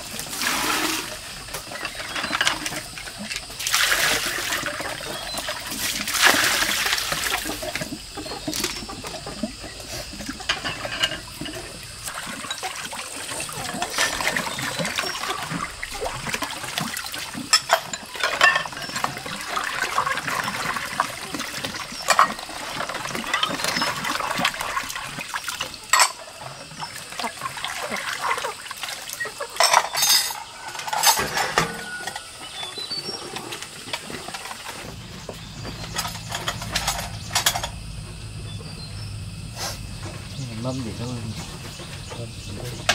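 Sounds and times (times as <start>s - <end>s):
water sloshing in basin: 0.0s - 42.9s
dishes clinking: 7.6s - 15.7s, 17.5s - 19.8s, 21.7s - 24.6s, 25.9s - 26.4s, 29.5s - 33.4s, 35.2s - 37.8s.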